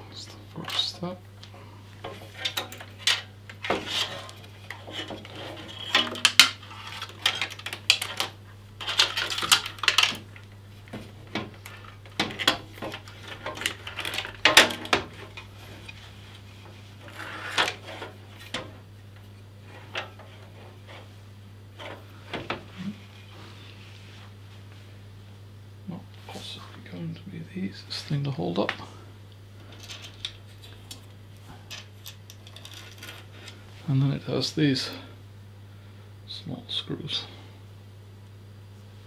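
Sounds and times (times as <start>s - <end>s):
steady low hum: 0.0s - 39.0s
metal and plastic clattering: 2.1s - 10.3s, 10.9s - 15.5s.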